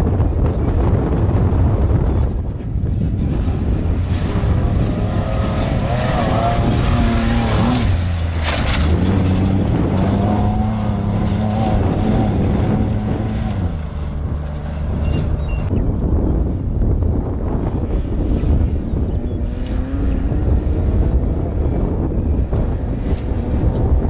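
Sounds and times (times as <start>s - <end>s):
race vehicle engine revving: 2.9s - 15.8s, 19.0s - 24.0s.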